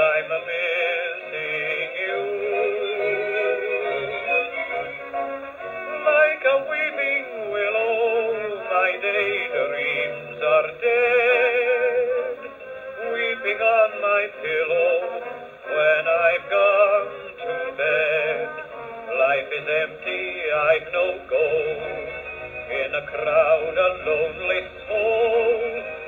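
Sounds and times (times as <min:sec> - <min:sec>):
man singing with vibrato: 0:00.0 - 0:26.0
band accompaniment: 0:09.1 - 0:26.0.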